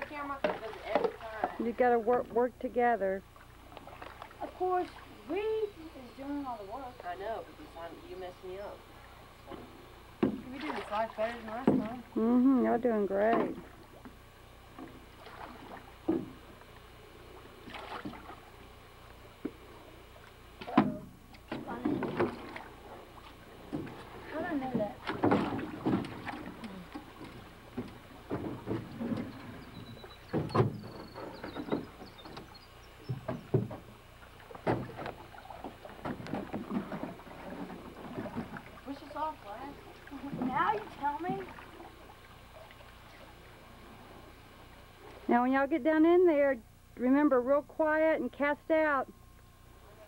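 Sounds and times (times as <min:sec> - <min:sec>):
faint water splashes: 0:00.0 - 0:02.4, 0:03.1 - 0:45.4
paddle scraping boat: 0:03.3 - 0:14.0, 0:19.3 - 0:45.3
knocks against metal boat: 0:10.2 - 0:10.5, 0:20.6 - 0:22.4, 0:24.6 - 0:26.4, 0:30.3 - 0:32.5, 0:33.1 - 0:33.9, 0:34.6 - 0:35.2.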